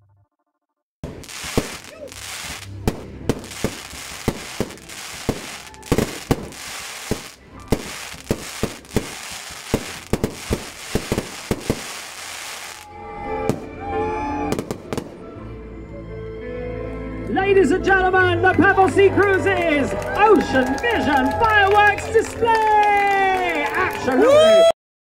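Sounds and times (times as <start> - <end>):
fireworks bangs: 1.0 - 13.7, 14.5 - 15.3
steady hiss: 1.1 - 12.8.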